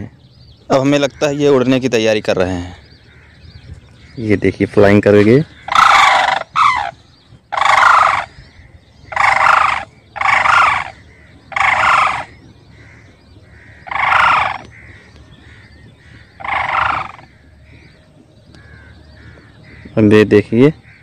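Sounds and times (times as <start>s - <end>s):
cranes trumpeting: 0.8s - 21.0s.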